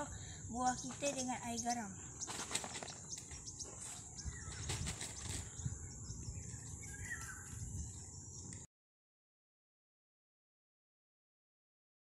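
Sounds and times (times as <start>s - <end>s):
bird chirp: 0.4s - 8.7s.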